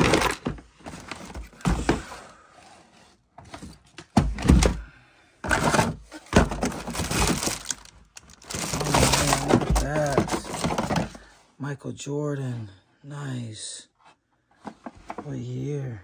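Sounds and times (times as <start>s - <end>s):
objects thunking and clattering: 0.0s - 2.3s, 3.4s - 11.3s, 14.6s - 15.3s.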